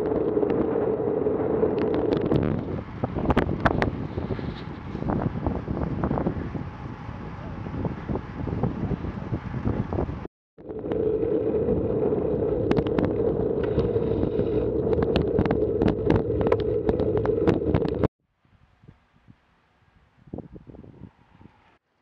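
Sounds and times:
wind rushing over microphone: 0.0 - 18.1, 20.2 - 21.7
sharp clicks and rattles: 12.4 - 18.1.

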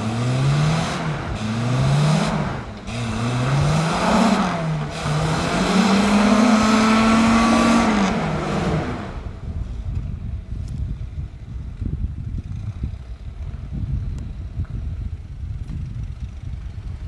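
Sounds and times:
engine revving hard: 0.0 - 9.4.

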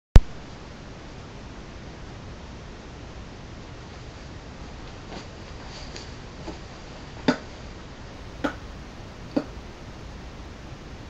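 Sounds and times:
room tone and microphone hiss: 0.2 - 11.0
faint rustles near microphone: 3.8 - 7.0.

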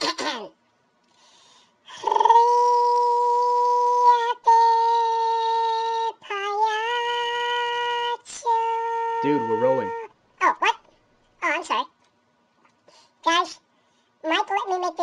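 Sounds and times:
high voice-like wail: 1.9 - 10.1.

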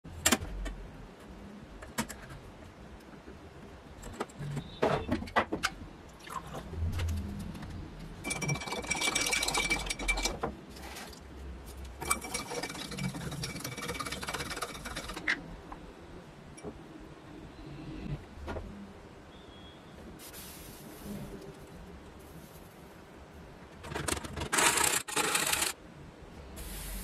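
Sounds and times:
spoon stirring in a glass: 8.2 - 10.4, 12.0 - 15.2.

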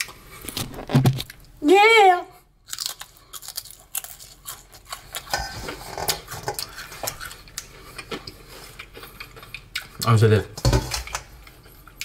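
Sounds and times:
crunching potato chip: 2.6 - 5.3.

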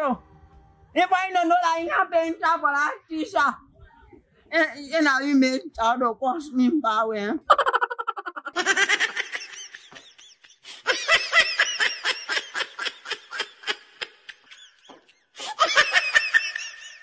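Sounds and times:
high-pitched laughter: 7.5 - 17.0.

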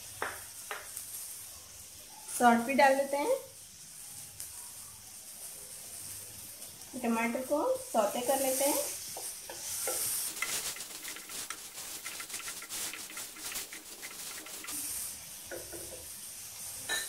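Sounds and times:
vegetables sizzling in butter: 5.3 - 17.0
wooden spatula scraping: 8.3 - 16.0.

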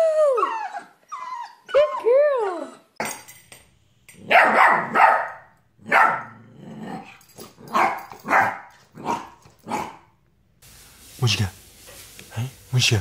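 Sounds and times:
puppy barking: 4.2 - 6.4, 7.6 - 10.1.

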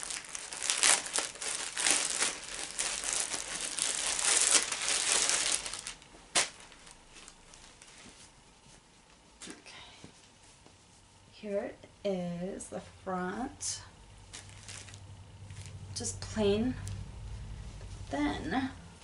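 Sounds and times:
packaging crinkling and tearing: 0.0 - 8.0, 14.3 - 15.8.

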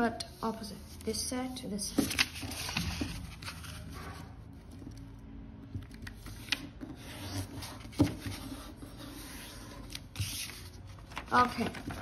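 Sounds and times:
paper being folded and creased: 1.9 - 5.1, 5.8 - 12.0.

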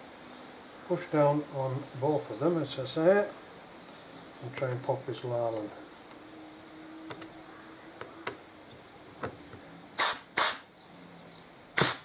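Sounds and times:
compressed air hisses: 10.0 - 10.7, 11.8 - 12.0.

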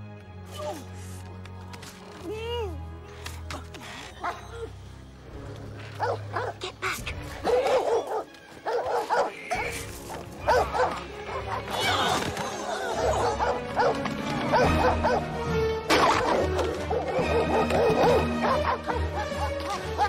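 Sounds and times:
film score music: 0.0 - 20.0
dogs barking: 4.2 - 4.7, 5.9 - 6.6, 7.4 - 12.0, 12.7 - 20.0.

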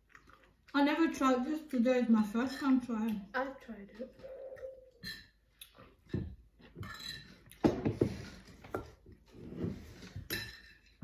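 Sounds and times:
forks clinking on plates: 5.0 - 5.4, 6.8 - 7.6, 10.2 - 11.0.

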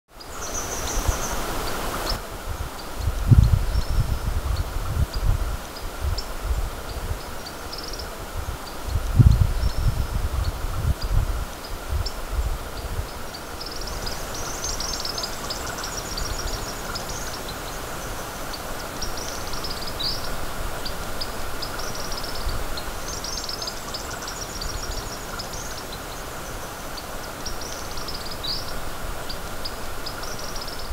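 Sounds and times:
wind rumble on microphone: 0.4 - 7.4, 8.0 - 14.9.

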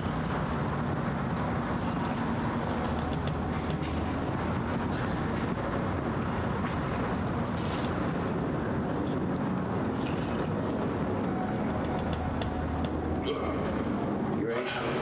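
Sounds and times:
water pouring onto cloth: 0.0 - 11.2
steady background hum: 0.0 - 15.0.

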